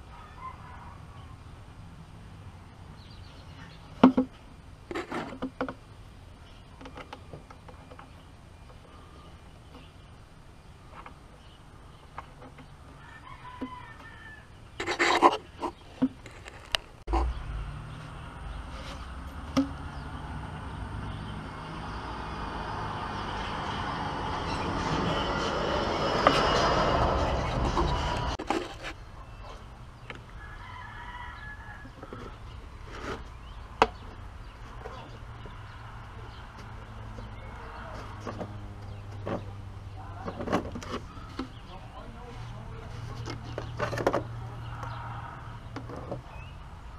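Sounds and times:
rooster crowing: 0.1 - 1.4, 12.9 - 14.6, 30.4 - 32.3, 44.7 - 45.6.

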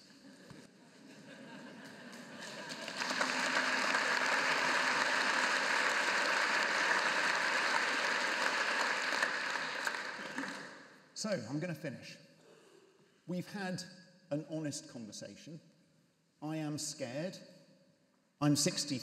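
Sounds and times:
large audience applauding: 2.1 - 10.9.

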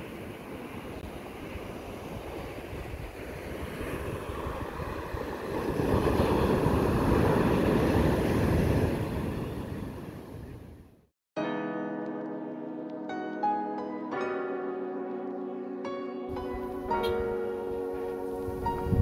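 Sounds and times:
ocean surf breaking on beach: 0.0 - 10.8
wind on microphone: 0.4 - 10.8, 16.3 - 19.0.

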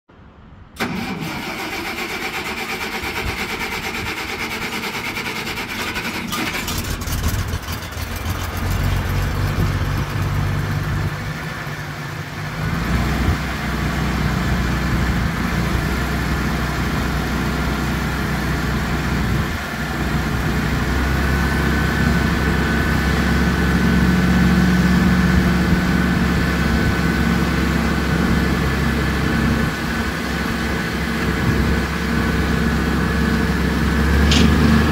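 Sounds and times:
tractor engine starting and running: 0.2 - 34.9.

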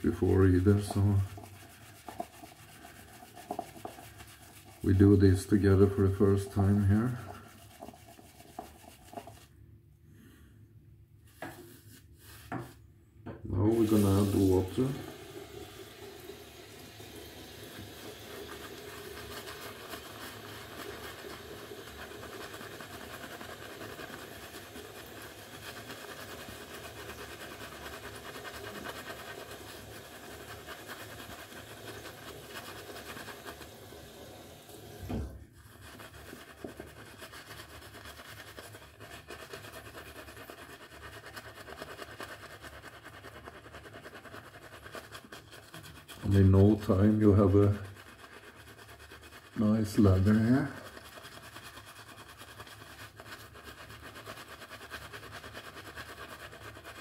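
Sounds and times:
shaving brush swishing lather: 0.0 - 9.6, 11.3 - 12.8, 13.6 - 57.0
low thump: 35.0 - 35.4.

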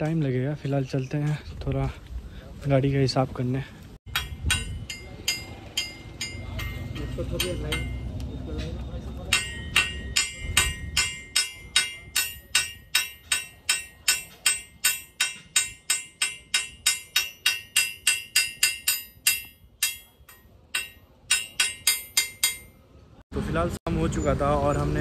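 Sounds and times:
hammer tapping on steel: 4.1 - 8.3, 9.2 - 22.8.

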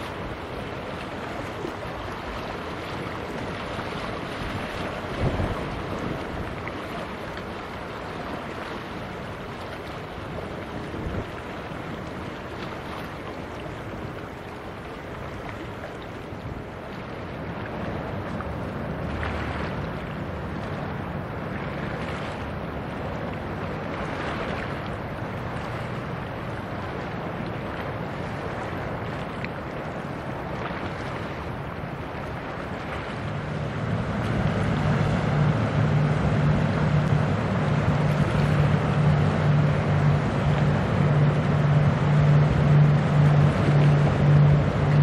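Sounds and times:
wind rushing over microphone: 1.8 - 7.0.

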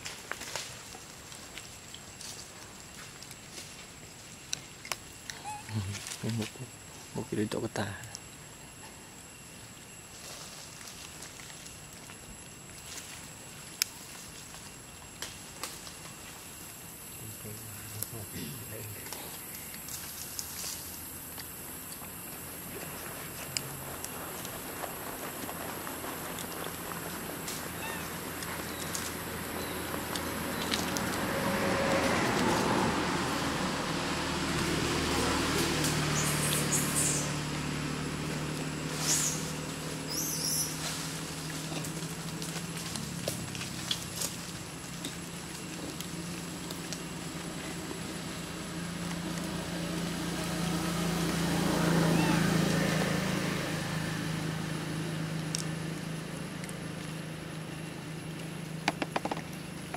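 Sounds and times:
road noise: 0.0 - 59.9
vehicle engine hum: 0.0 - 59.9.

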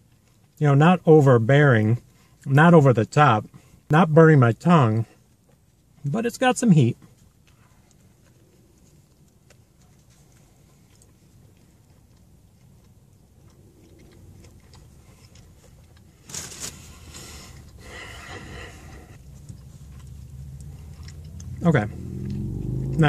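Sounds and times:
low steady hum: 0.0 - 23.0
quiet chewing: 0.0 - 23.0
paper crinkling: 16.2 - 17.3.

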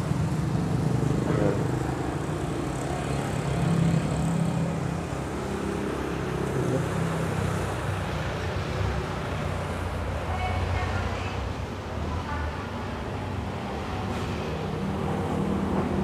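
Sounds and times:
traffic hum: 0.0 - 16.0.

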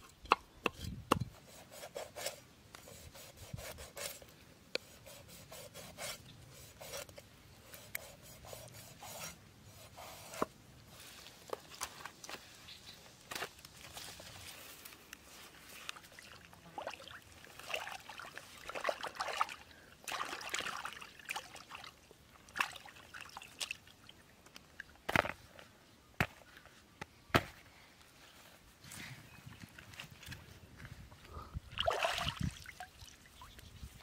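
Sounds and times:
water sloshing and trickling: 15.7 - 24.9, 31.7 - 33.7.

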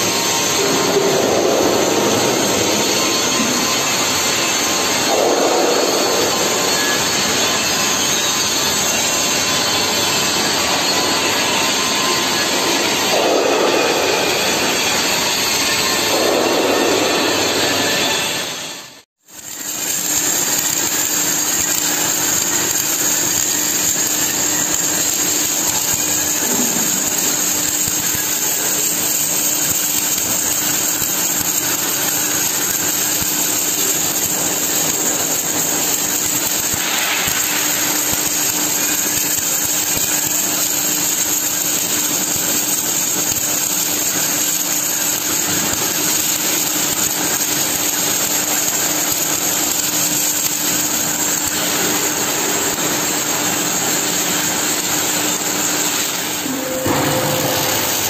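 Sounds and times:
welding arc hissing: 0.0 - 58.0
steady hum: 55.9 - 58.0.

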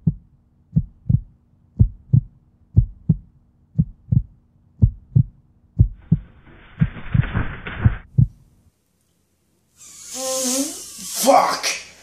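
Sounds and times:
heartbeat double thump: 0.0 - 8.4.

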